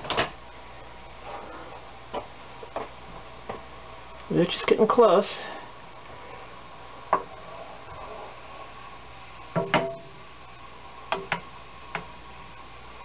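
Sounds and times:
wooden spoon knocking on skillet: 9.6s - 10.2s, 11.1s - 12.1s.

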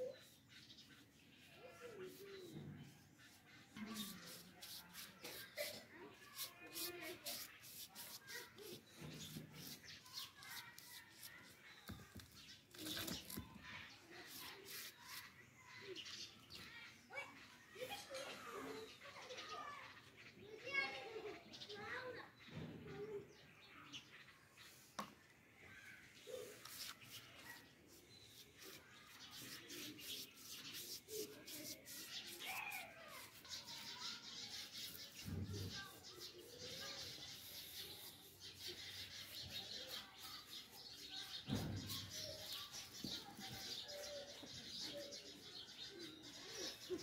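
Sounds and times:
paintbrush scratching on clay pot: 0.1s - 15.4s, 26.3s - 43.8s.

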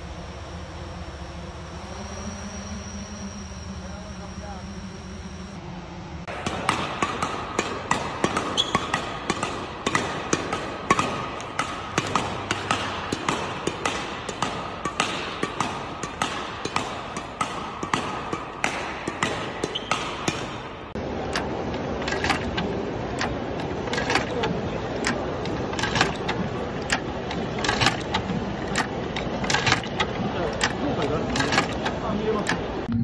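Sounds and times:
machine running: 0.0s - 6.5s, 21.0s - 33.0s
racket hitting shuttlecocks: 6.3s - 29.4s.

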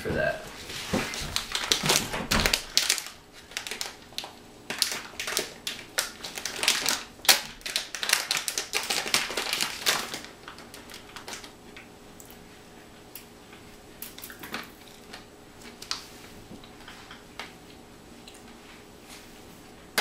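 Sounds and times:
foil-lined paper bag crinkling: 0.8s - 11.6s.

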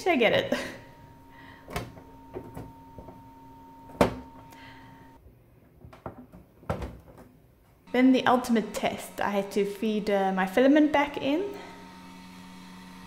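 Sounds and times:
faint steady hum: 0.0s - 5.2s.

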